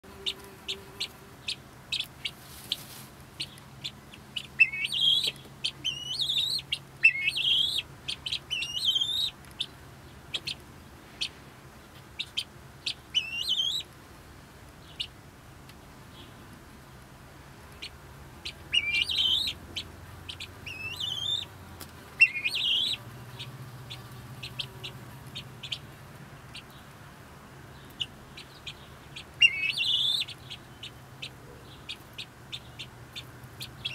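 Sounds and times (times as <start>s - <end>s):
guinea fowl chattering: 0.2s - 11.4s, 12.1s - 13.9s, 17.8s - 21.5s, 22.2s - 25.9s, 27.8s - 33.9s.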